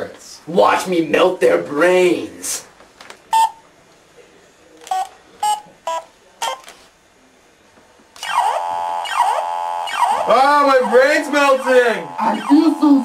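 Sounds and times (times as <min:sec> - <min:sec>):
toy ray gun beeps: 0:08.2 - 0:13.0
warbling siren-like wail: 0:08.2 - 0:13.0.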